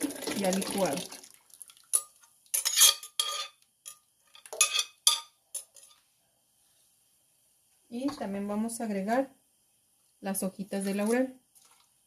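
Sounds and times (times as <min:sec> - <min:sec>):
glass and metal clinking on a pot: 0:01.9 - 0:06.0.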